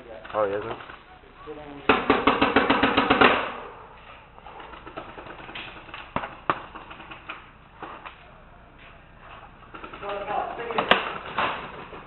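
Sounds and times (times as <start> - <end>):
paintball marker firing: 1.9 - 3.8.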